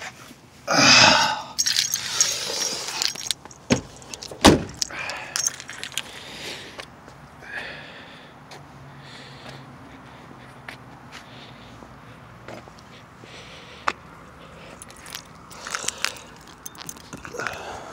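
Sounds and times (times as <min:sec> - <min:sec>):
handling noise: 0:01.6 - 0:06.5, 0:14.6 - 0:17.6
keys jangling: 0:01.6 - 0:06.5, 0:14.6 - 0:17.6.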